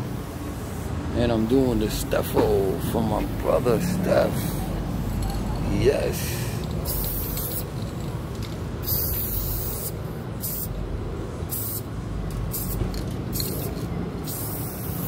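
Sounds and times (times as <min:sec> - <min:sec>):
spray paint can hissing: 0:06.5 - 0:08.0, 0:08.8 - 0:10.8, 0:11.4 - 0:15.0.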